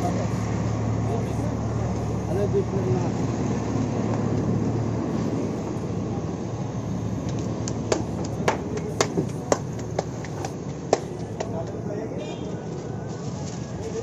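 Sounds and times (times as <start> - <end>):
low roar of food stall: 0.0 - 14.0.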